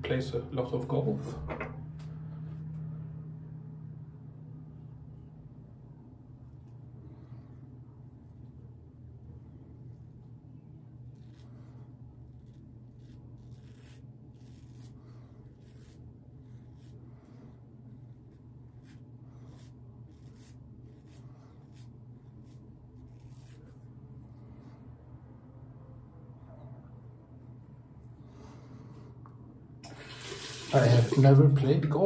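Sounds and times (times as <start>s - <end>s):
steady low hum: 0.0s - 30.0s
razor scraping stubble: 9.8s - 24.0s.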